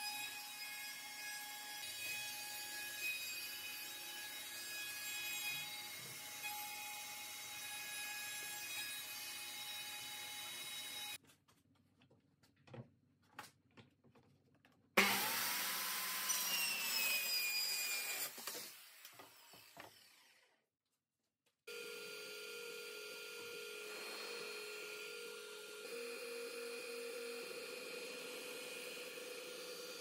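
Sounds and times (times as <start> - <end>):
circular saw cutting plywood: 15.0 - 20.6, 21.7 - 30.0.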